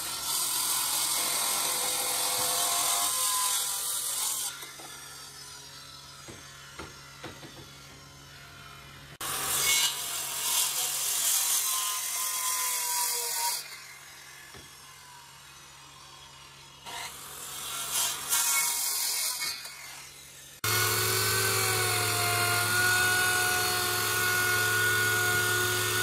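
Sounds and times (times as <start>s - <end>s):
circular saw cutting wood: 0.0s - 26.0s.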